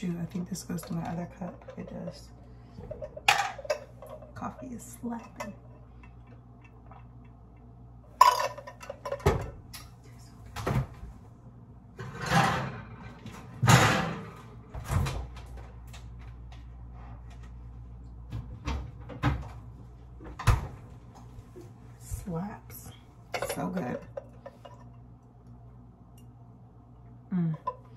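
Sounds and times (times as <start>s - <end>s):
refrigerator door opening and shutting: 12.0s - 15.4s.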